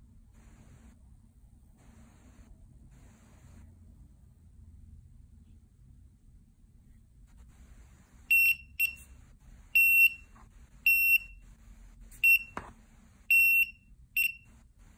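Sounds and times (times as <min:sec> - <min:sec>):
piezo buzzer beeping: 0:08.3 - 0:09.1, 0:09.8 - 0:11.4, 0:12.2 - 0:12.7, 0:13.3 - 0:14.5.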